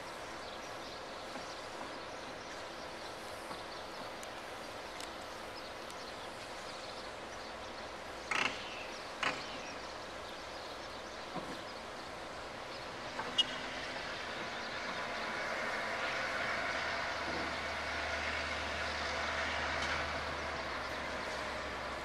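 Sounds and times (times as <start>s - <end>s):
outdoor background noise: 0.0s - 22.0s
distant diesel locomotive engine: 6.4s - 22.0s.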